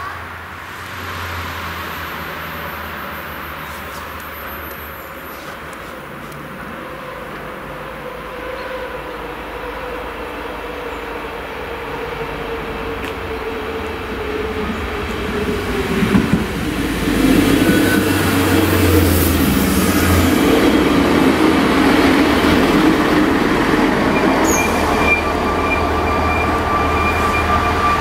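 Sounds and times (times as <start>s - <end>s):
diesel railcar passing: 0.0s - 28.0s
high steady whine: 0.4s - 5.8s.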